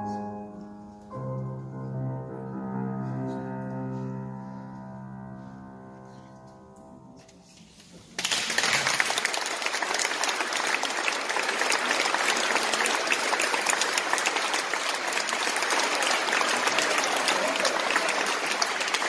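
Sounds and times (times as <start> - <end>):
audience applauding: 8.2 - 19.0.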